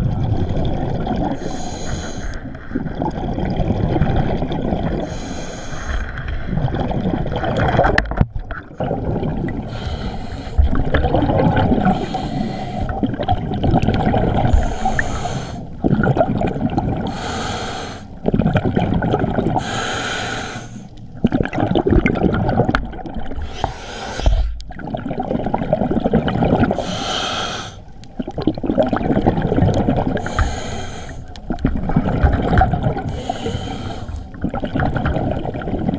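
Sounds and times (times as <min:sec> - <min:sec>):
rumble of exhaled bubbles: 0:00.0 - 0:05.2, 0:05.9 - 0:17.4, 0:18.1 - 0:19.9, 0:20.9 - 0:27.2, 0:27.9 - 0:35.9
regulator inhalation hiss: 0:01.4 - 0:02.4, 0:05.1 - 0:06.1, 0:11.9 - 0:12.9, 0:14.6 - 0:15.7, 0:17.1 - 0:18.1, 0:26.8 - 0:27.8, 0:30.2 - 0:31.3, 0:33.1 - 0:34.2.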